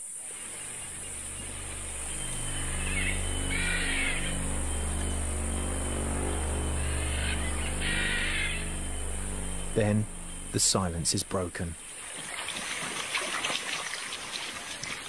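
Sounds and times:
insects buzzing: 0:00.0 - 0:15.0
chirping calls: 0:00.3 - 0:10.9
low musical drone: 0:00.3 - 0:11.9.

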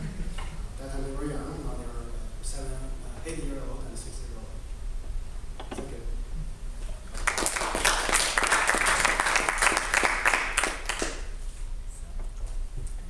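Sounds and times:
audience applauding: 0:07.1 - 0:11.4.

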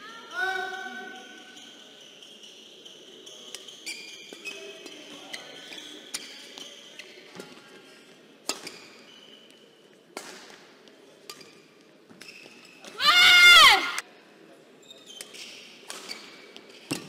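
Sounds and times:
shoe squeaks on court: 0:01.1 - 0:07.6, 0:08.5 - 0:09.9, 0:11.3 - 0:12.9, 0:14.8 - 0:17.0.

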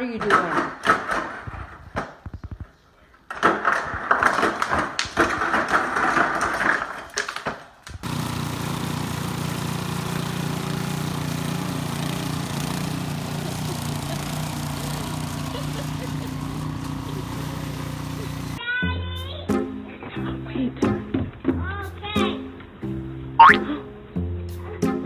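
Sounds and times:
snowblower engine running: 0:08.0 - 0:18.6.

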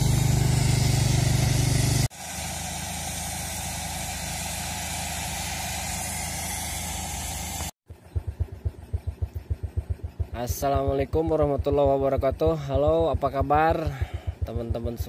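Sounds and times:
loud even hiss: 0:00.0 - 0:07.7
heavy machinery engine running: 0:00.0 - 0:10.9
rapid low thumps: 0:07.9 - 0:15.0.

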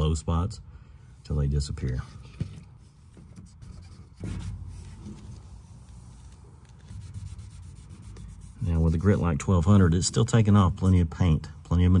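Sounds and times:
towel rubbing on wet paint: 0:03.5 - 0:09.4.

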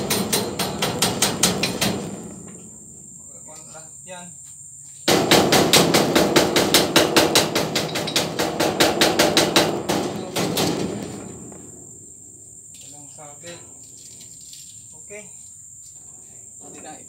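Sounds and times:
fast hammering: 0:00.0 - 0:02.6, 0:05.1 - 0:11.4
crickets chirring: 0:00.0 - 0:17.0.

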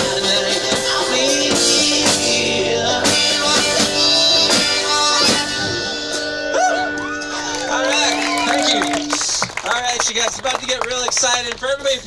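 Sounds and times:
drum kit: 0:00.0 - 0:07.4
strummed guitar: 0:00.0 - 0:09.2
wavering held melody notes: 0:05.6 - 0:09.2.

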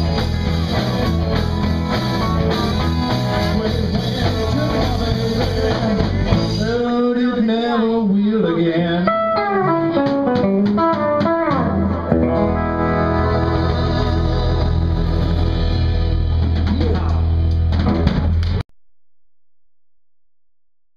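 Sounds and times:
electric guitar run: 0:00.0 - 0:06.6, 0:09.4 - 0:18.6.

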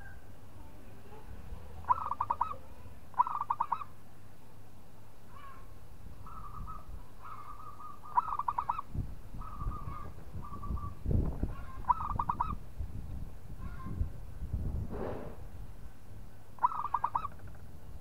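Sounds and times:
dove cooing: 0:01.8 - 0:03.9, 0:06.3 - 0:12.6, 0:16.6 - 0:17.5.

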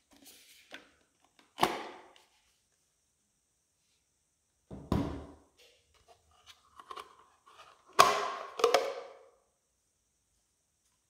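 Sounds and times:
plastic parts knocking and clicking: 0:07.9 - 0:09.2.

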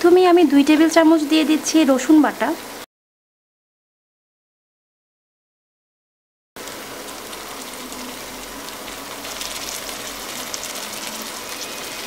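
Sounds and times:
onions sizzling in oil: 0:00.0 - 0:02.8, 0:06.6 - 0:12.0.

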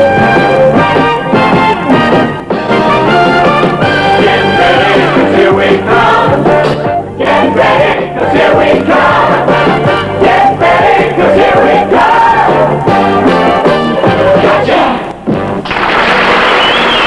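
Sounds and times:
band playing: 0:00.0 - 0:16.0
voices singing together: 0:03.9 - 0:15.2.

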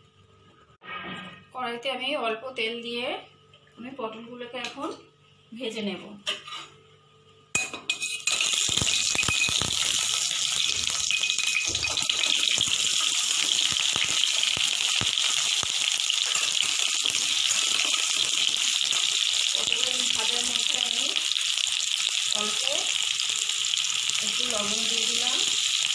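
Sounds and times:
frying sizzle: 0:08.1 - 0:25.9.

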